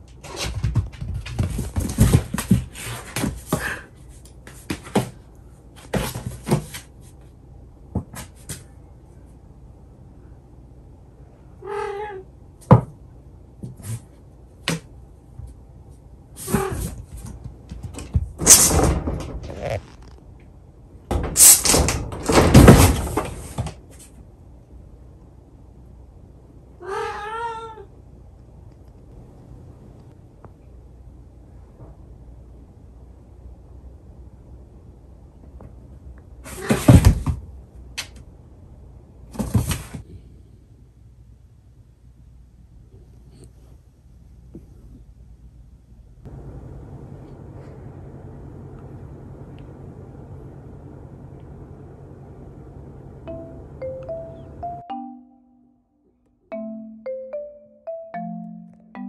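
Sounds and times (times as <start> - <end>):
cat meowing: 11.6 - 12.3, 26.8 - 27.9.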